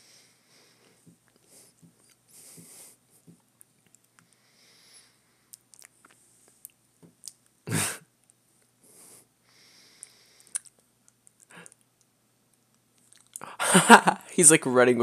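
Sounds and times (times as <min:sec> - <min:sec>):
mouth clicks: 0:10.0 - 0:12.1.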